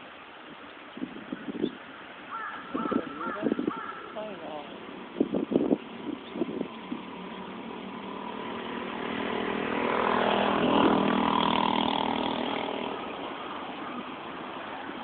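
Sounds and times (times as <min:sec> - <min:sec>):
boat engine running: 0:03.7 - 0:15.0.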